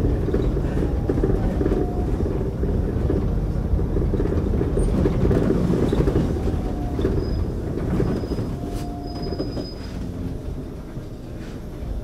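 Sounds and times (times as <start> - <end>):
bus tyres rumbling on cobblestones: 0.0 - 12.0
faint high squeaks: 7.1 - 10.2.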